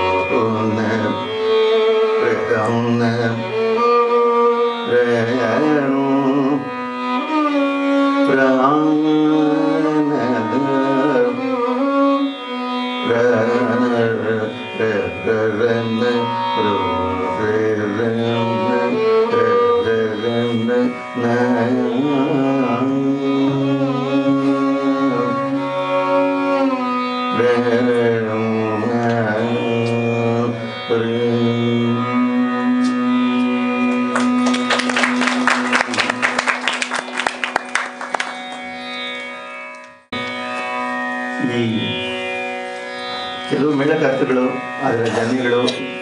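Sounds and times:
man singing: 0.0s - 36.4s
violin melody: 0.0s - 46.0s.

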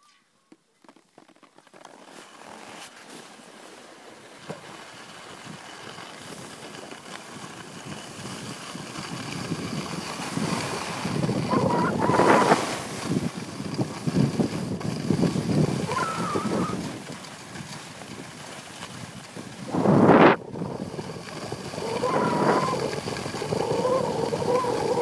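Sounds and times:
skis scraping over snow: 0.0s - 25.0s
wind buffeting microphone: 7.4s - 25.0s.

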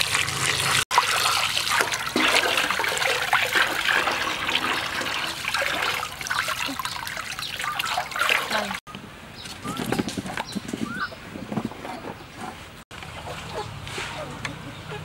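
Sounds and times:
hose water pouring: 0.0s - 8.8s
water splashing in metal basin: 0.0s - 8.8s.

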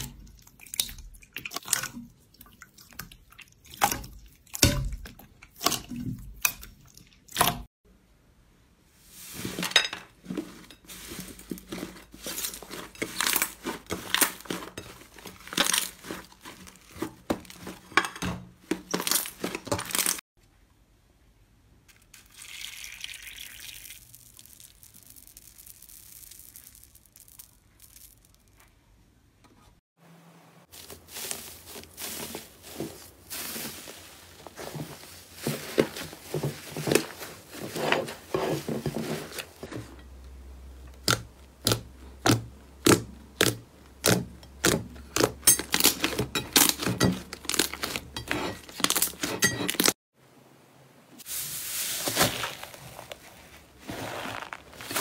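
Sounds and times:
liquid pouring with hiss: 22.2s - 25.7s.

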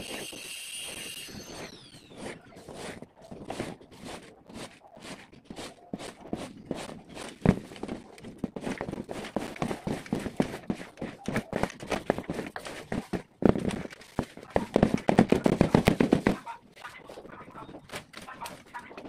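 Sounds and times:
mini chainsaw cutting branch: 0.0s - 2.4s.

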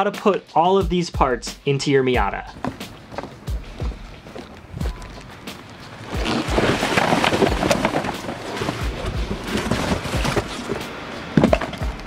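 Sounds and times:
plastic bags and boxes rustling: 2.6s - 12.0s.

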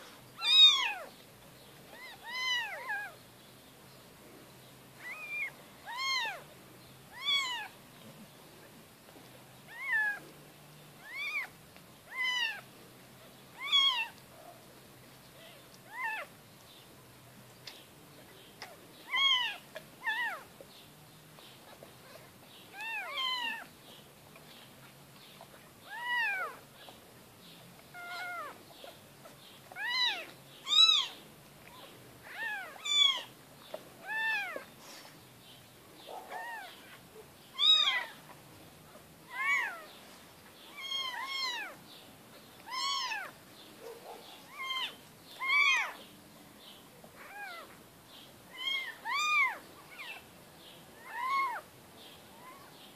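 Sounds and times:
kittens mewing: 25.8s - 27.0s, 27.8s - 31.2s, 36.1s - 38.4s, 42.6s - 43.4s.

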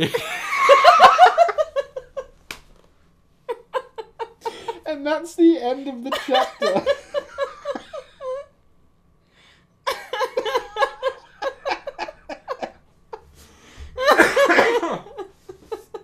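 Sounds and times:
people laughing hard: 0.0s - 2.3s, 3.5s - 4.8s, 6.1s - 8.5s, 9.9s - 13.2s, 14.0s - 16.0s.

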